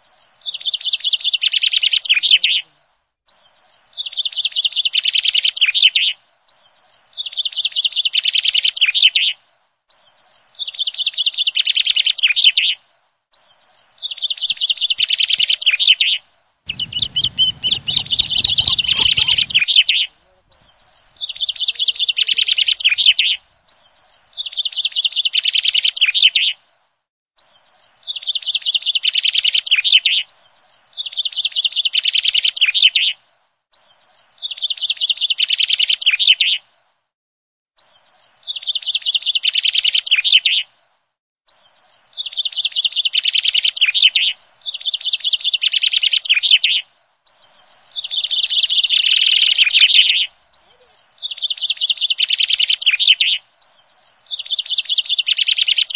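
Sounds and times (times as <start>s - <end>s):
bird chirping trill: 16.7s - 23.2s.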